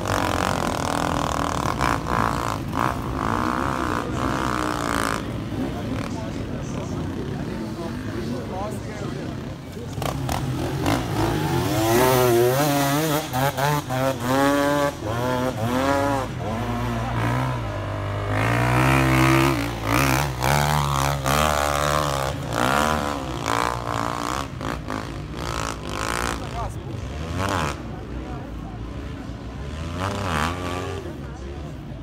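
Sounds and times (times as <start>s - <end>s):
dirt bike engine revving: 0.0s - 31.7s.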